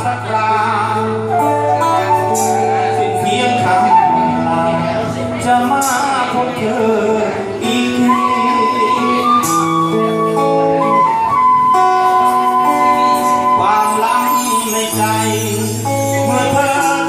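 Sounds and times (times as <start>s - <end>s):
guitar: 0.0s - 17.0s
flute sustained notes: 7.8s - 16.2s.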